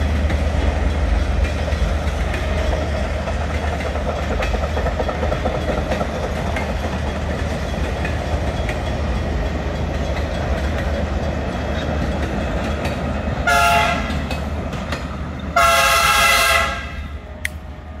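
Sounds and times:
train cars rumbling on rails: 0:00.0 - 0:18.0
train horn blasts: 0:13.4 - 0:14.2, 0:15.6 - 0:17.2.

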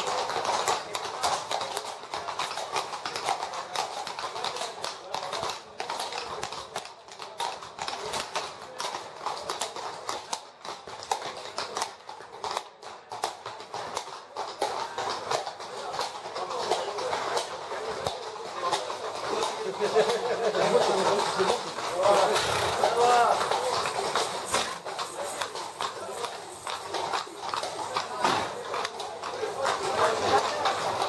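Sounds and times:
horse hooves on stone street: 0:00.0 - 0:31.0
onlookers chattering: 0:00.0 - 0:31.0.

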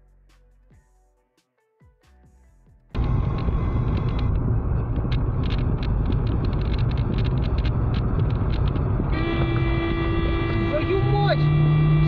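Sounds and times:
car engine and road rumble: 0:02.9 - 0:12.0
light clicks and rattles: 0:03.0 - 0:09.0.

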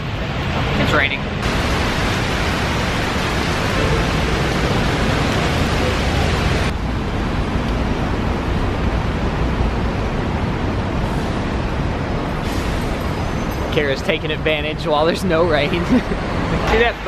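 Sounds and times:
traffic on wet roads: 0:00.0 - 0:17.0
heavy rain on paving: 0:01.4 - 0:06.8.

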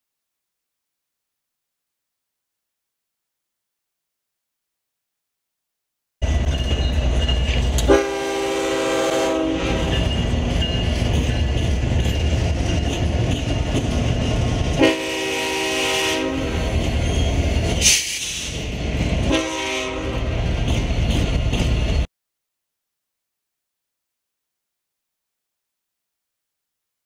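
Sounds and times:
freight train rumble and wheel clatter: 0:06.2 - 0:22.1
locomotive horn blasts: 0:07.8 - 0:10.1, 0:14.7 - 0:16.8, 0:19.2 - 0:20.3.

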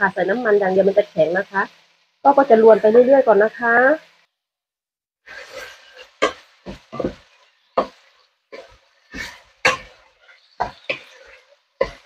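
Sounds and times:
pork sizzling: 0:00.0 - 0:04.3, 0:05.2 - 0:12.0
wooden spoon scraping a pan: 0:05.3 - 0:12.0.

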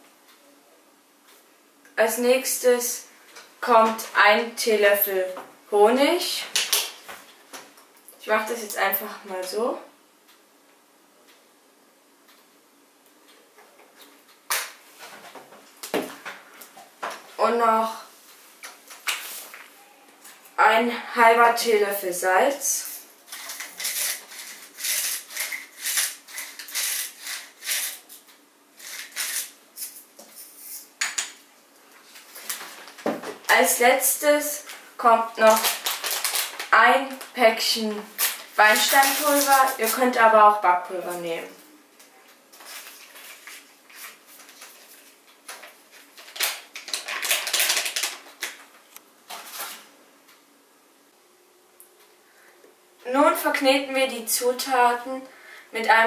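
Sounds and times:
salt mill grinding: 0:23.3 - 0:28.1, 0:28.8 - 0:30.9
packet crinkling and rustling: 0:35.4 - 0:37.3, 0:42.6 - 0:49.9.

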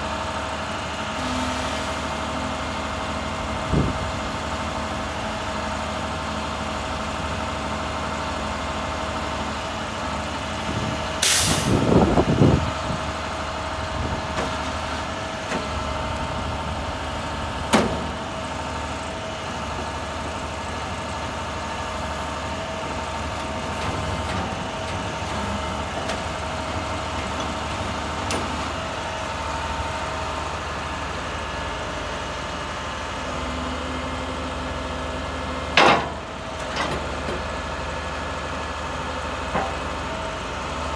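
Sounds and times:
truck engine running: 0:00.0 - 0:40.9.

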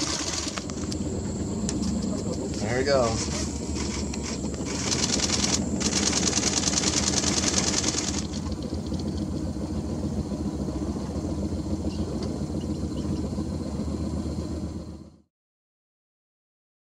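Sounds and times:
fast high rattle: 0:00.0 - 0:01.0, 0:01.8 - 0:09.8
boat engine idling: 0:00.0 - 0:15.2.

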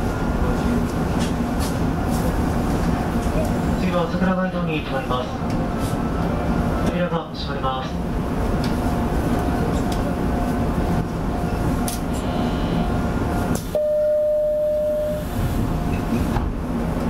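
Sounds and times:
faint high tone: 0:13.8 - 0:15.3
steady beep: 0:13.8 - 0:15.3.

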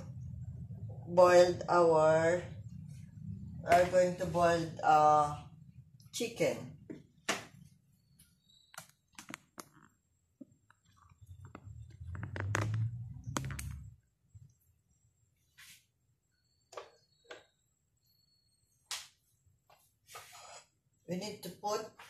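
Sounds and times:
low handling rumble: 0:11.1 - 0:14.1.

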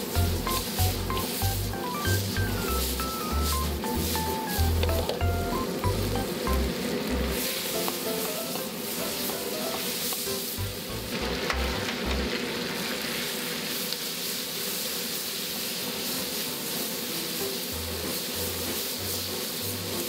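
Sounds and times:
music with low bass beat: 0:00.0 - 0:06.7
food sizzling in a wok: 0:00.0 - 0:20.0.

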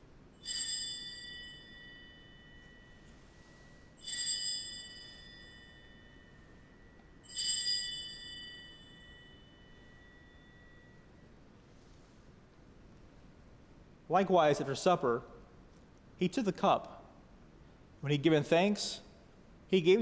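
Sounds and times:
altar bell ringing: 0:00.3 - 0:11.4.

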